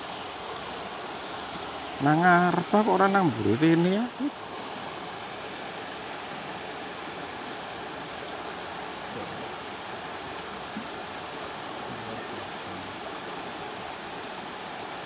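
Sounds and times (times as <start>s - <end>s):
river rushing over rocks: 0.0s - 15.0s.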